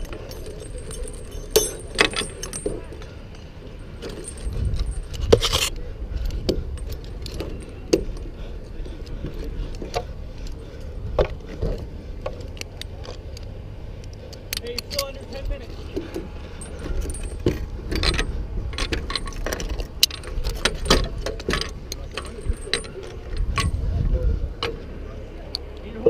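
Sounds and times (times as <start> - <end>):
metal hardware clinking: 0.0 - 5.7, 14.4 - 23.8
low rumble: 0.0 - 12.6.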